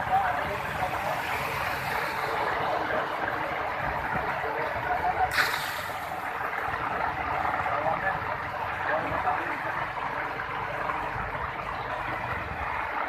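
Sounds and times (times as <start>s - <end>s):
heavy rain on a flooded street: 0.0s - 13.0s
runoff pouring off an awning: 0.0s - 13.0s.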